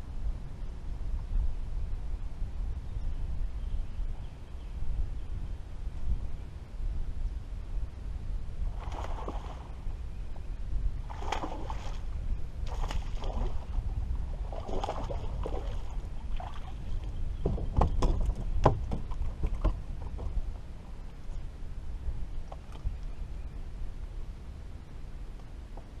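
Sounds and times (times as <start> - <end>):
steady low rumble: 0.0 - 26.0
water sloshing against boat hull: 12.7 - 21.4
fish thrashing and splashing: 14.5 - 16.8.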